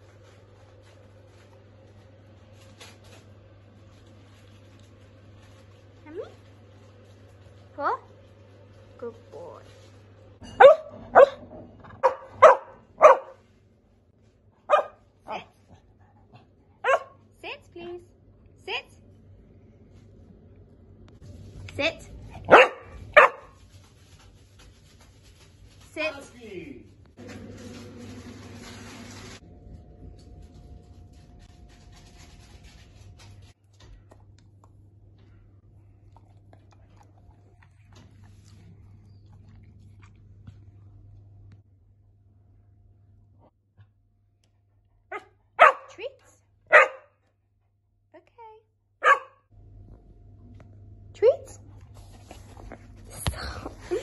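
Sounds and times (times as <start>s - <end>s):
steady low hum: 0.0s - 26.1s
dog barking: 10.5s - 13.4s, 14.7s - 15.5s, 16.8s - 17.2s, 22.4s - 23.6s, 45.1s - 46.0s, 46.7s - 47.2s, 49.0s - 49.5s.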